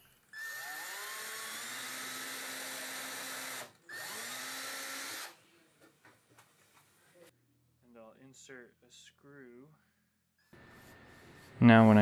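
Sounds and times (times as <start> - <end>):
cordless drill whining: 0.3 - 5.4.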